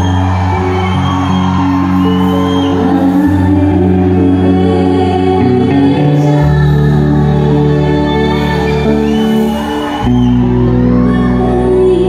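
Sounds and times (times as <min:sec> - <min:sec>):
person singing: 0:02.0 - 0:12.0.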